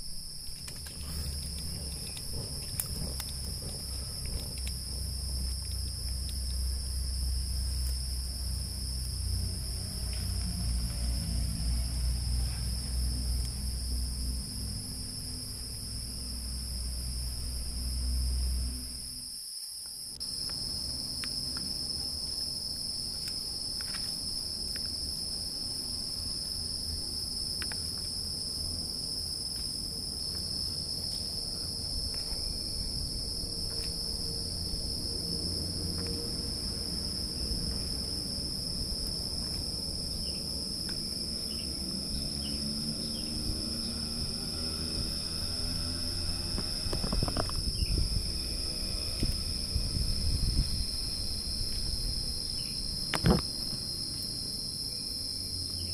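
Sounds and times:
insects chirping chorus: 0:00.0 - 0:55.9
low rumble: 0:00.3 - 0:19.2, 0:31.2 - 0:53.0.

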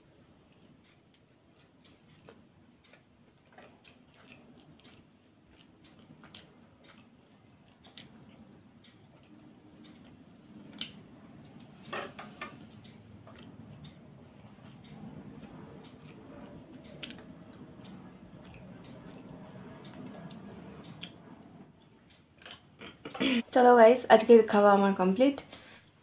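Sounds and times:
person chewing and smacking: 0:00.5 - 0:11.6, 0:12.6 - 0:13.5, 0:14.6 - 0:20.4.

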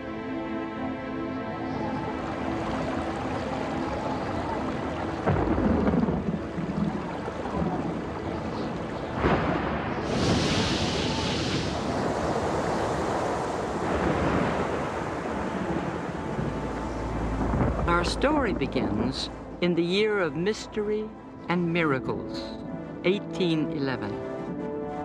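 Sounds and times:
rushing wind: 0:01.4 - 0:19.6.

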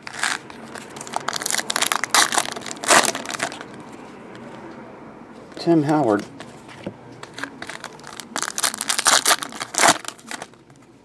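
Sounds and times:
foil wrapper crinkling: 0:00.0 - 0:03.8, 0:07.2 - 0:10.6.

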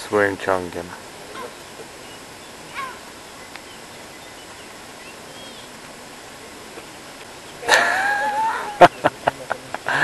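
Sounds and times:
outdoor background noise: 0:00.0 - 0:10.0
faint short chirping calls: 0:01.2 - 0:07.6.

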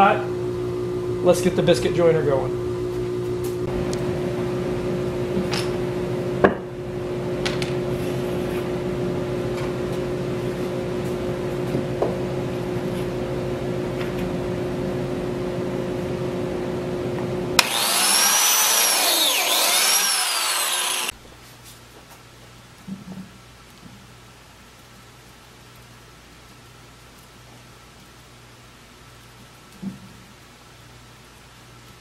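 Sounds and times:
biscuit joiner motor running: 0:17.6 - 0:21.1.

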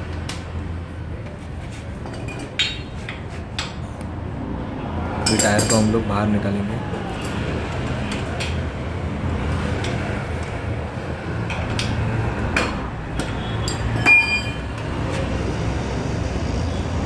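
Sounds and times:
wheel spanner clinking on nuts: 0:02.0 - 0:03.8, 0:05.2 - 0:06.1, 0:13.2 - 0:14.8
sharp ringing metal clink: 0:13.6 - 0:14.6.

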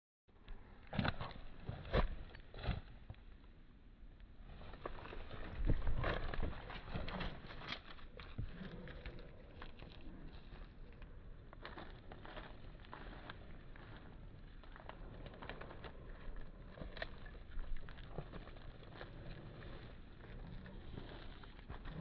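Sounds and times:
rustling: 0:04.4 - 0:22.0.

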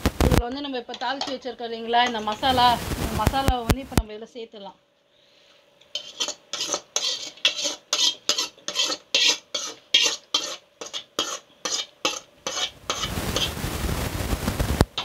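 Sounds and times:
metal spoon scraping steel pan: 0:00.9 - 0:02.8, 0:05.9 - 0:13.6
steady rushing hiss: 0:01.9 - 0:04.0, 0:05.9 - 0:15.0.

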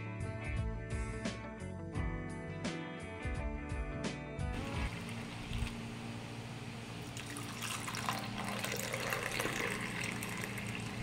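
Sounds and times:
tea pouring into cup: 0:04.6 - 0:11.0.

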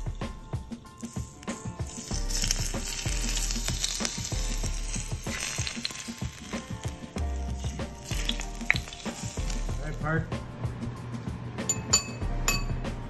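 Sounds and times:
hot oil sizzling: 0:00.0 - 0:10.3.

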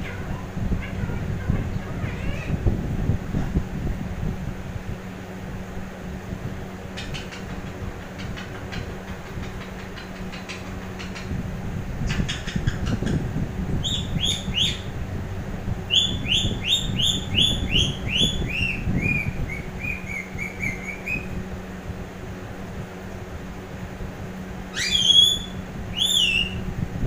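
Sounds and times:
parakeet chirping: 0:00.0 - 0:02.6, 0:07.0 - 0:11.4, 0:12.1 - 0:13.2, 0:13.8 - 0:14.9, 0:15.9 - 0:21.4, 0:24.7 - 0:26.6.

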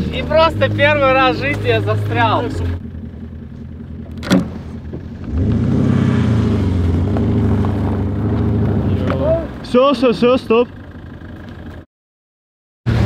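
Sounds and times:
engine revving at high revs: 0:04.1 - 0:09.2.

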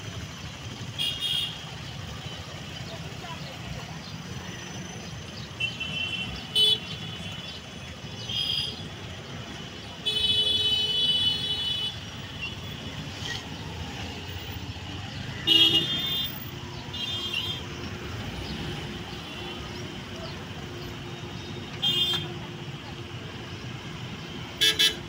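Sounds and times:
low rumble of engines: 0:00.0 - 0:25.0
vehicle horns honking: 0:00.9 - 0:01.7, 0:05.6 - 0:07.4, 0:08.2 - 0:08.9, 0:10.0 - 0:12.8, 0:15.3 - 0:17.7, 0:21.7 - 0:22.5, 0:24.5 - 0:25.0.

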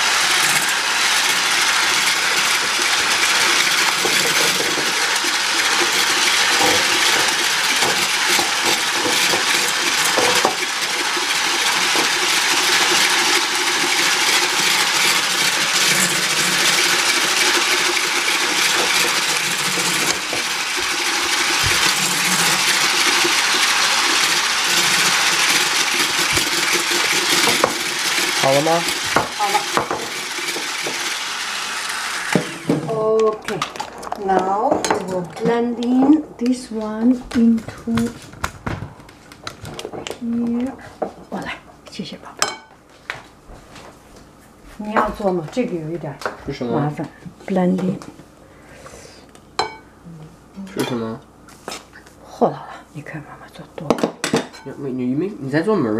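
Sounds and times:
electric hand mixer whipping: 0:00.0 - 0:40.2.

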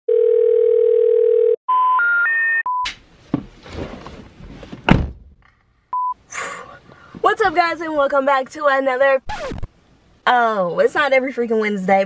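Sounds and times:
telephone dial tone: 0:00.1 - 0:01.6
rising telephone beeps: 0:00.1 - 0:02.8
thump: 0:02.9 - 0:03.6, 0:04.6 - 0:05.5
rustling noise: 0:03.1 - 0:05.0.

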